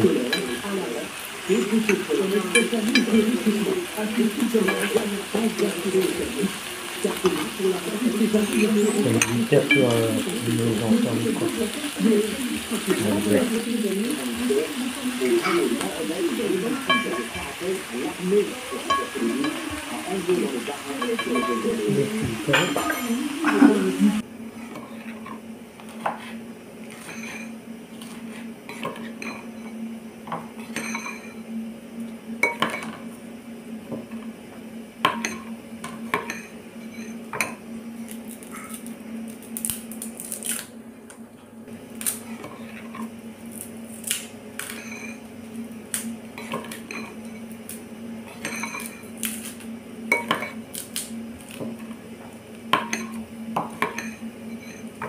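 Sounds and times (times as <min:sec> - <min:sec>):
steady low hum: 0:00.0 - 0:55.0
utensils clinking: 0:01.5 - 0:14.6, 0:15.2 - 0:24.2, 0:30.3 - 0:31.4, 0:44.6 - 0:45.3, 0:46.4 - 0:47.6, 0:48.3 - 0:49.4
knife scraping on wooden cutting board: 0:24.6 - 0:29.3.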